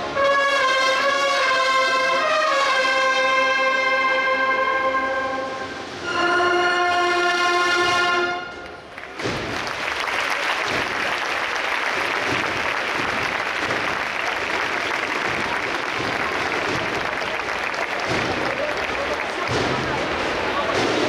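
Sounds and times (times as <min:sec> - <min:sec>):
brass band chord: 0:00.0 - 0:08.7
audience applause and cheering: 0:08.6 - 0:21.0.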